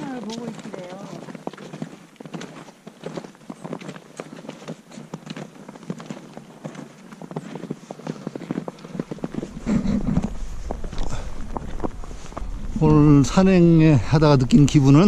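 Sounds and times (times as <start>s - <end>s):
footsteps crunching on snow: 0.0s - 15.0s
low rumble: 9.2s - 15.0s.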